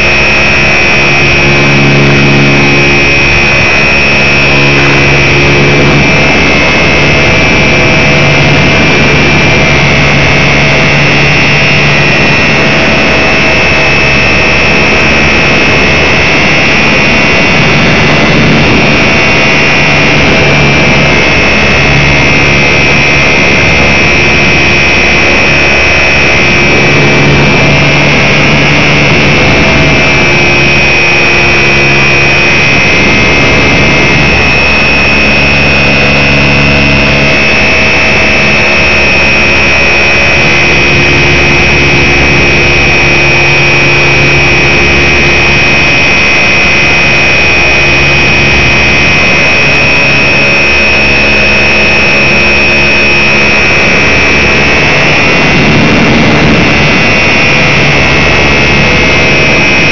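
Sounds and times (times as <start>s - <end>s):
low hum: 0.0s - 59.9s
model plane motor whining: 0.0s - 59.9s.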